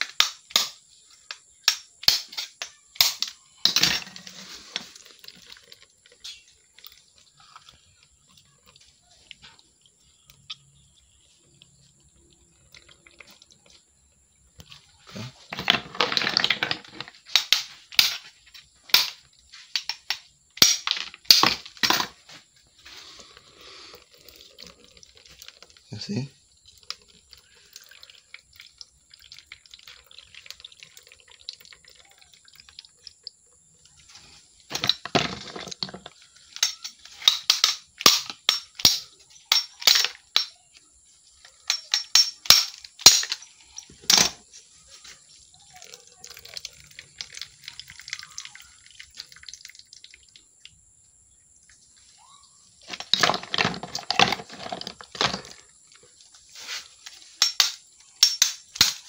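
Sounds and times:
knife cracking snail shells: 0:00.0 - 0:03.6.

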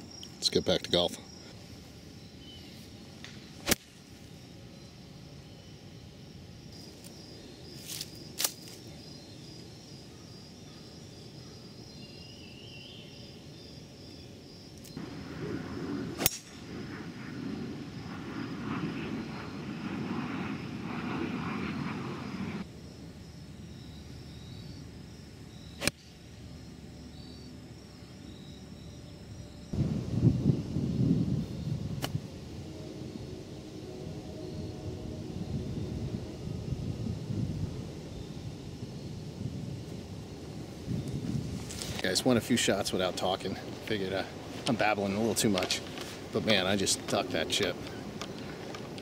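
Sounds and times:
outdoor background noise: 0:00.0 - 0:49.0.

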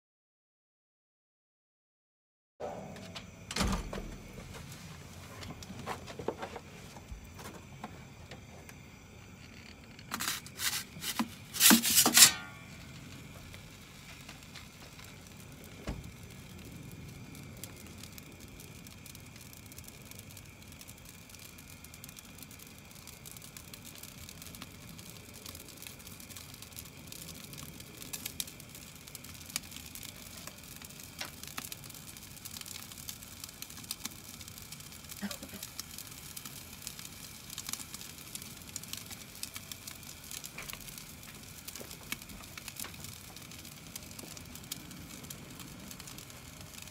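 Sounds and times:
gas burner hissing: 0:02.6 - 0:46.9
metal peel scraping on stone: 0:10.0 - 0:12.7.

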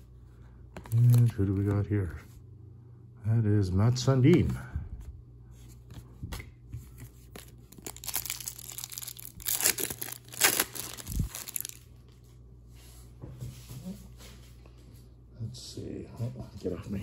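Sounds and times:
card pack wrapper tearing: 0:07.3 - 0:11.8.

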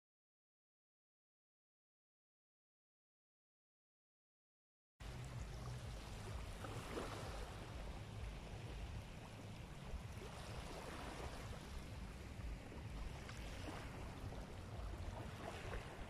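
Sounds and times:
sea waves: 0:05.0 - 0:16.0
wind buffeting microphone: 0:05.0 - 0:16.0.

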